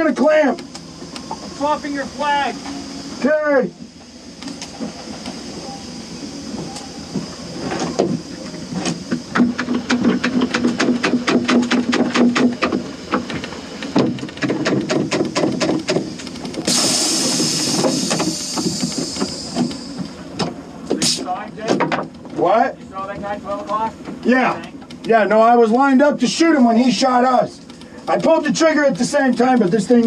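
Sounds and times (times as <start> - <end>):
steady hiss: 0.0 - 22.2.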